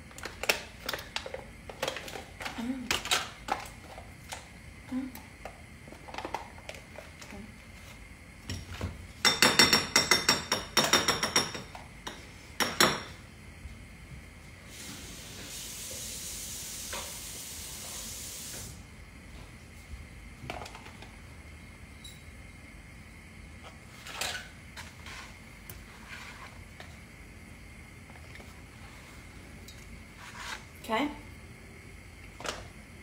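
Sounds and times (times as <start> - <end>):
kitchen knocks and rattles: 8.5 - 11.8
steady hiss: 14.4 - 19.9.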